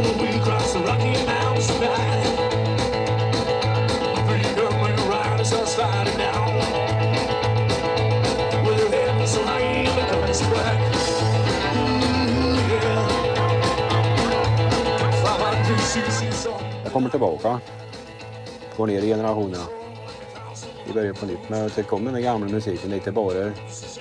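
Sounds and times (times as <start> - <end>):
person singing: 0.0 - 2.5, 4.1 - 6.8, 8.5 - 17.6, 19.4 - 22.1
rock band music: 0.0 - 24.0.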